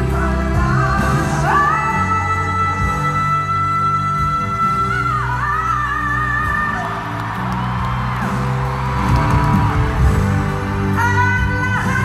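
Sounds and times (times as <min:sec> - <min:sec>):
woman singing: 0:00.0 - 0:07.2, 0:10.8 - 0:12.0
band playing: 0:00.0 - 0:12.0
audience whooping and cheering: 0:06.4 - 0:11.0.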